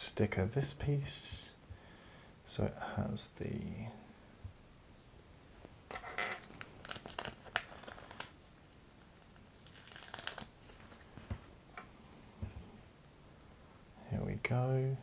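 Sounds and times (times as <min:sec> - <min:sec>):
sticker sheet crinkling: 0:06.4 - 0:08.4, 0:09.6 - 0:11.0.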